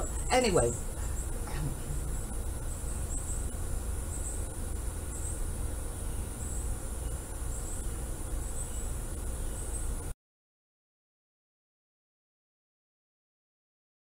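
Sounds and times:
faint high chirps: 0.0s - 10.1s
steady low rumble: 0.0s - 10.1s.

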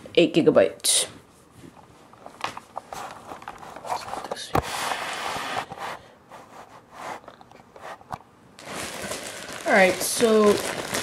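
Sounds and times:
plastic bag rustling: 8.6s - 11.0s.

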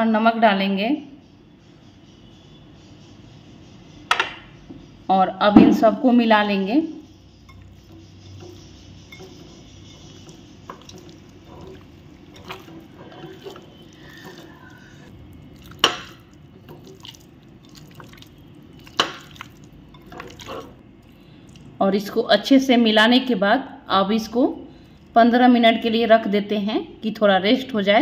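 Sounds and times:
wet squishing of mixing chicken: 7.5s - 21.8s.

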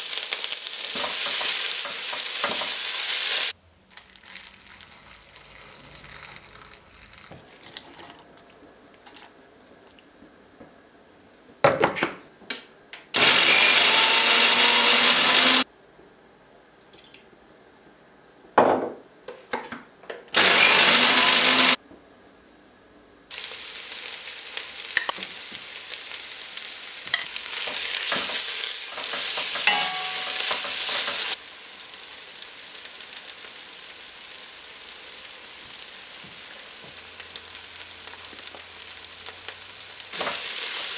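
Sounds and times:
onions sizzling in a pot: 0.0s - 8.0s, 13.2s - 15.7s, 23.3s - 40.9s
mixer grinder running: 13.2s - 15.6s, 20.4s - 21.8s.

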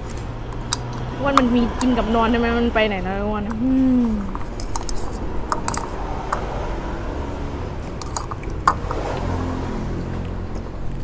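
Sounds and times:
low background hum: 0.0s - 6.5s.

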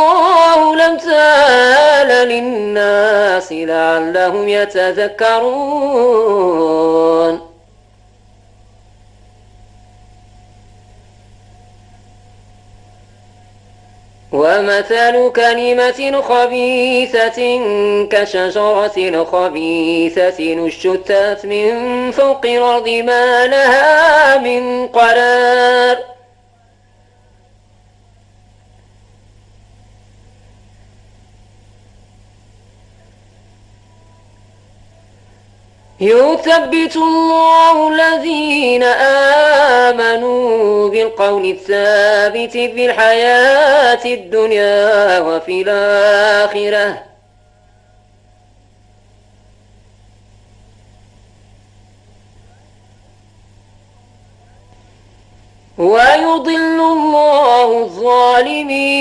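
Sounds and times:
low electrical hum: 0.0s - 59.0s
faint hiss: 43.2s - 59.0s.

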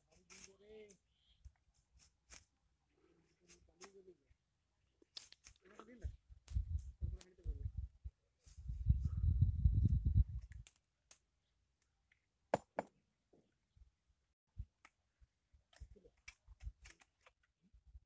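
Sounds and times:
wind buffeting microphone: 6.0s - 10.6s.

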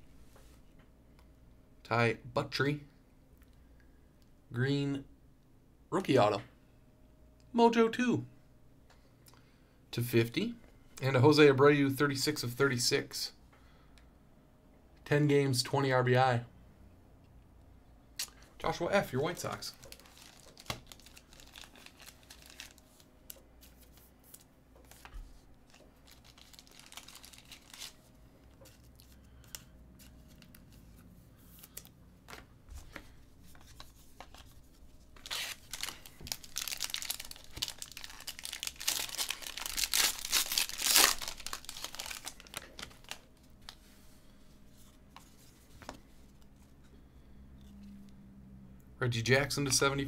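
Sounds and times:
foil wrapper tearing and crinkling: 19.6s - 23.0s, 25.7s - 28.0s, 35.2s - 43.3s.

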